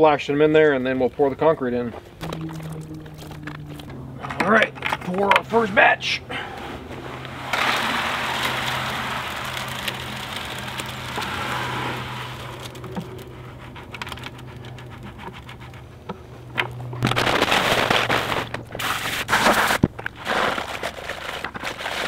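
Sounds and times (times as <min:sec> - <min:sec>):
bucket scraping and knocking: 0:02.2 - 0:05.6, 0:06.8 - 0:12.6, 0:17.0 - 0:22.0
wet concrete sliding from bucket: 0:07.0 - 0:12.8, 0:17.1 - 0:22.0
hose spraying water: 0:07.3 - 0:12.7.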